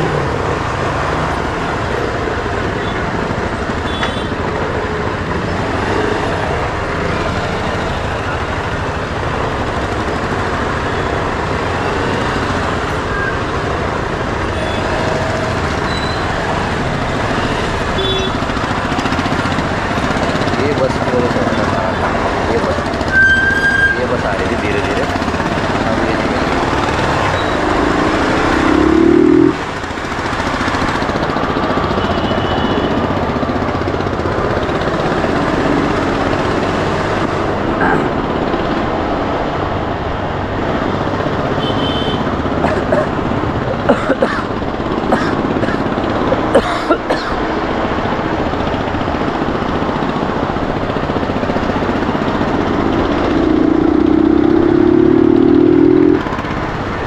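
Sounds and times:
wind and road noise: 0:00.0 - 0:57.0
motorcycle engine running: 0:24.8 - 0:37.7, 0:48.2 - 0:57.0
low tone: 0:27.2 - 0:29.7.

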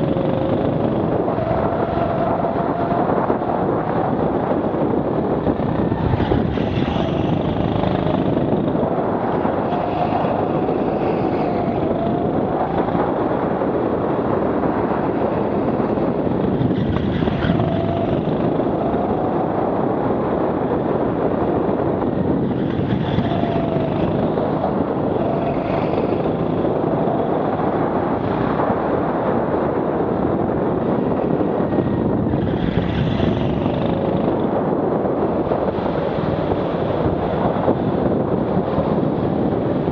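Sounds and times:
go-kart engine revving: 0:00.0 - 0:03.5, 0:04.7 - 0:13.9, 0:15.1 - 0:19.5, 0:21.0 - 0:28.5, 0:32.3 - 0:34.5
wind rush: 0:00.0 - 0:39.9.

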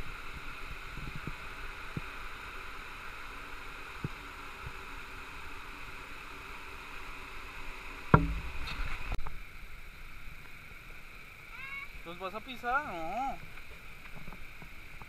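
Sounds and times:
loud knock: 0:08.1 - 0:08.6
uneven low bumps: 0:08.1 - 0:09.4.

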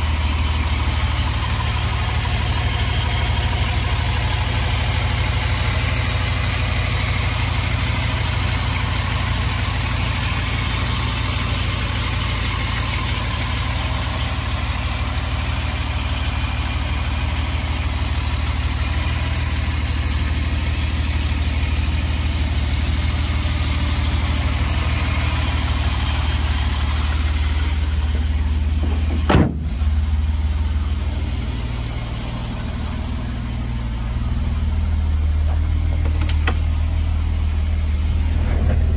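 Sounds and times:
car engine idling: 0:00.0 - 0:38.9
car bonnet slamming shut: 0:28.8 - 0:29.8.

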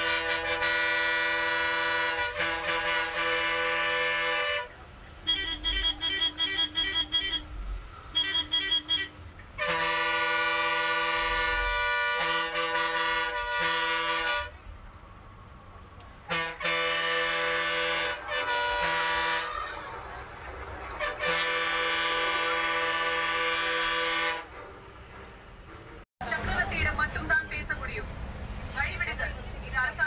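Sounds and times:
bus air horn blasts: 0:00.0 - 0:14.6, 0:16.3 - 0:19.9, 0:21.0 - 0:24.9.

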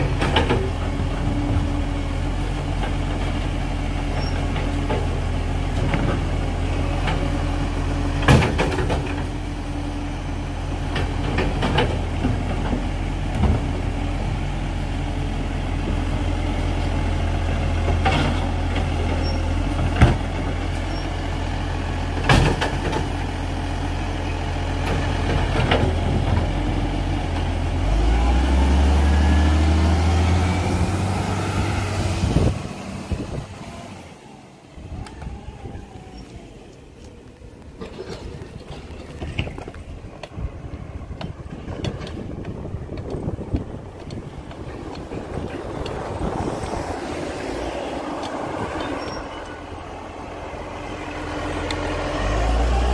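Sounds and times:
diesel truck engine running: 0:00.0 - 0:52.9.

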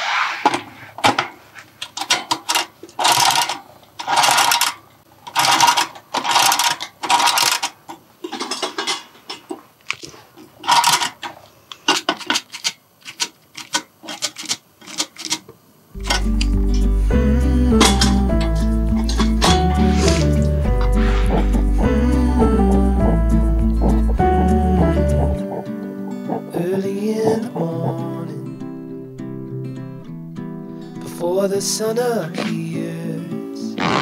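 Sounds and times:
rustling and scraping noises: 0:00.0 - 0:16.9, 0:17.8 - 0:21.8
music with steady beat: 0:16.0 - 0:28.1.

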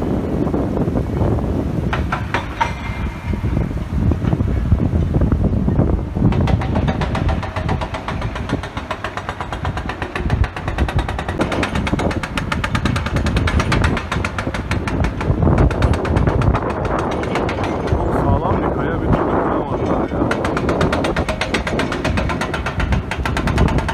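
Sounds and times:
hydraulic breaker hammering rock: 0:01.9 - 0:03.5, 0:06.2 - 0:23.9
excavator engine: 0:05.9 - 0:23.9.

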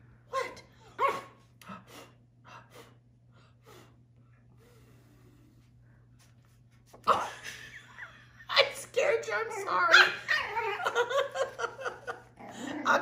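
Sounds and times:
faint low hum: 0:00.0 - 0:13.0
soft breathy sniffs: 0:03.6 - 0:06.3.

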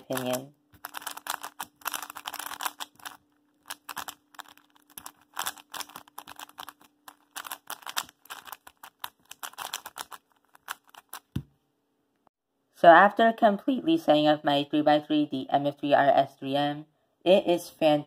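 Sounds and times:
puzzle cube plastic clicks: 0:00.0 - 0:11.5.

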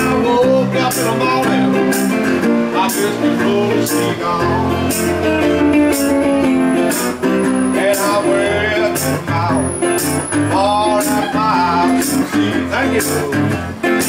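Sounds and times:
man singing: 0:00.0 - 0:05.3, 0:07.4 - 0:14.0
resonator guitar blues: 0:00.0 - 0:14.0
steady beat: 0:01.9 - 0:12.4.

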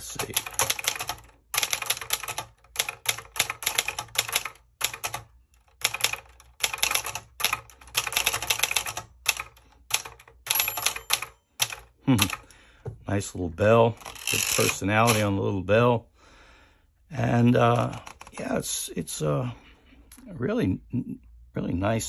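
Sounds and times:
typewriter typing: 0:00.0 - 0:12.4, 0:14.0 - 0:15.3
typewriter margin bell ding: 0:10.5 - 0:11.8.

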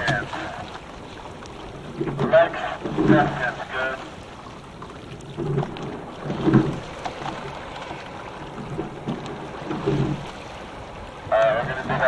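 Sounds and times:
water running along hull: 0:00.0 - 0:12.0
oars knocking in oarlocks: 0:05.1 - 0:10.4.

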